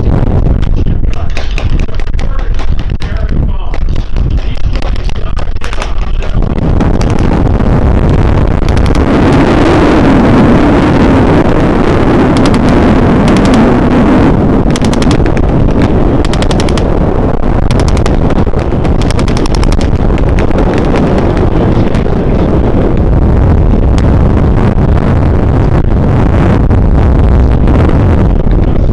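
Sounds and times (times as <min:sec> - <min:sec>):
wind rumble on microphone: 0:00.0 - 0:28.9
machine-gun blank fire: 0:12.4 - 0:12.6, 0:14.7 - 0:15.4, 0:16.2 - 0:16.9, 0:17.7 - 0:18.2.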